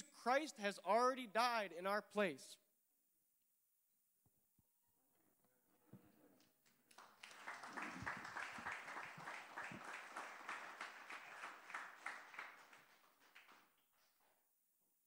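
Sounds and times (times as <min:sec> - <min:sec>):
congregation applauding: 0:06.4 - 0:14.3.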